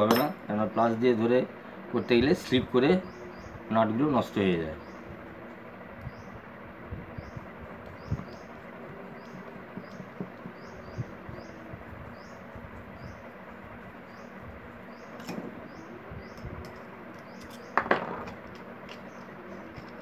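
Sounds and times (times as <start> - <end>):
hands tapping motor wires and casing: 9.2 - 11.1.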